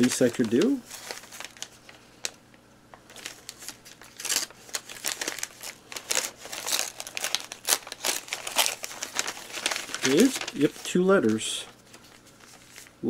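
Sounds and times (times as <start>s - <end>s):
paper crinkling and rustling: 0.0s - 2.4s, 3.0s - 13.0s.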